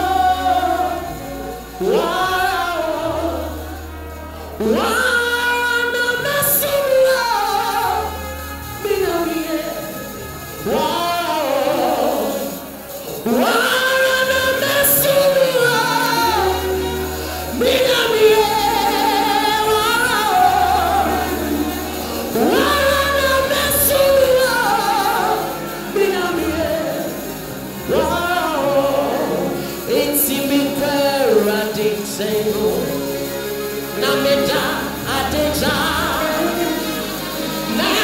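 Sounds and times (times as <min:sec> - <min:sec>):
live band: 0:00.0 - 0:38.0
man singing gospel: 0:10.6 - 0:38.0.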